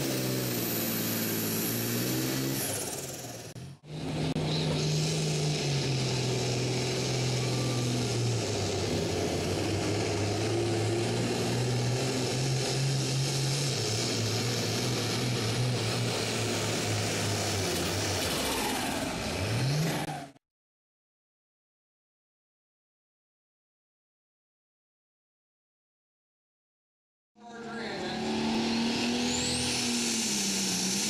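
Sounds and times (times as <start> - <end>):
tractor diesel engine under load: 0.0 - 20.4, 27.4 - 31.0.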